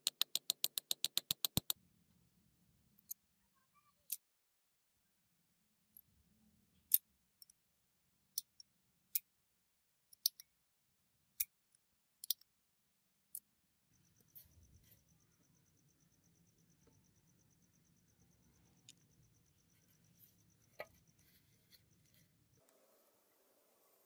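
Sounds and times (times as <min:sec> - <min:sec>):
gun action clicking and snapping: 0:00.0 - 0:01.7
steady pulsing high tone: 0:14.0 - 0:22.3.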